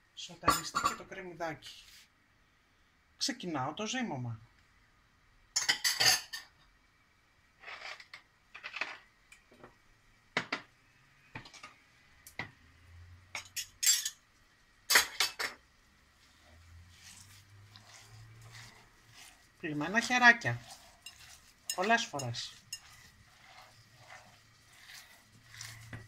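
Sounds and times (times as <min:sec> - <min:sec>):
minced meat rustling: 0:15.9 - 0:26.0.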